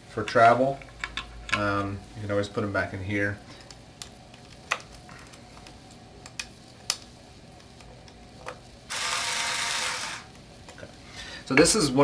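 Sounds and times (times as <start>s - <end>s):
electric screwdriver whirring: 8.9s - 10.3s.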